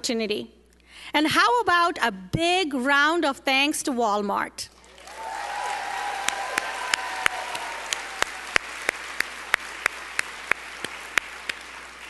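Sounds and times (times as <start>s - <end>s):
audience applauding: 4.8s - 12.0s
sharp hand claps near microphone: 5.0s - 12.0s.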